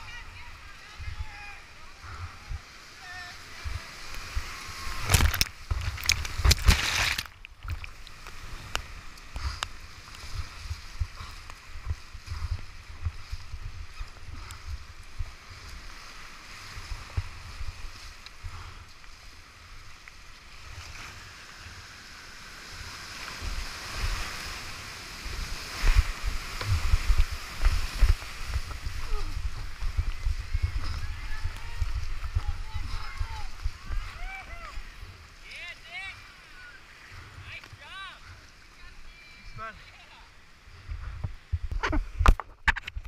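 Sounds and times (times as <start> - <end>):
loud splashing: 3.4 - 8.1.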